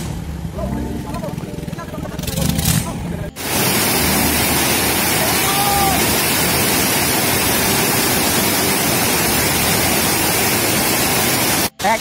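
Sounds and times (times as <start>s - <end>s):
waterfall rushing: 3.4s - 12.0s.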